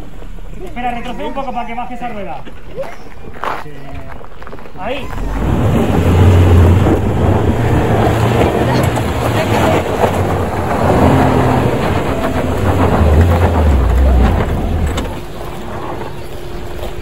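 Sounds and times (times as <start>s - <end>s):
tyres scrabbling on gravel: 2.2s - 17.0s
car engine labouring: 5.0s - 17.0s.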